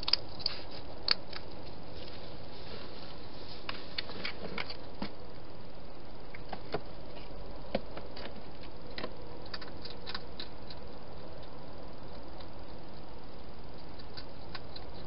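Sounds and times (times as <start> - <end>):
hedgehog clicks and taps eating: 0.0 - 1.6, 7.7 - 13.1, 13.7 - 15.0.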